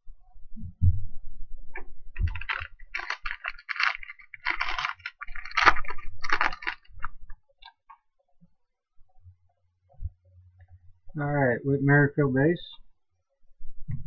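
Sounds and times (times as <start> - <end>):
foil wrapper crinkling and tearing: 2.2 - 7.8.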